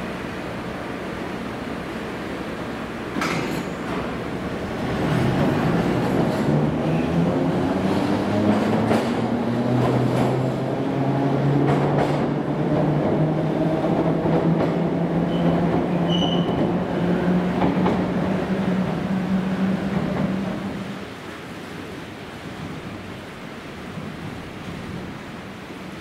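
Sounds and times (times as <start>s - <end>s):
wheels clacking over rail joints: 3.1s - 10.8s, 11.4s - 20.6s
high squeal: 15.3s - 16.6s.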